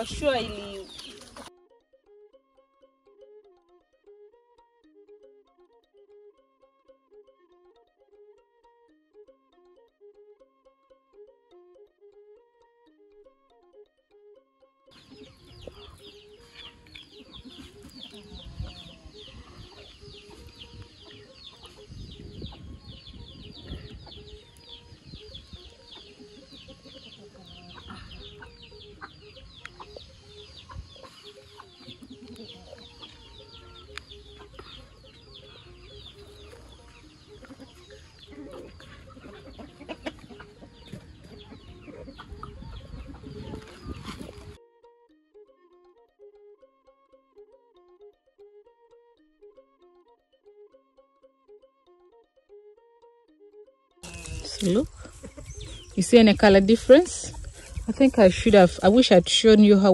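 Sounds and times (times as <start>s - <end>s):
chickens clucking: 0.0s - 1.5s, 15.0s - 44.6s, 54.0s - 59.9s.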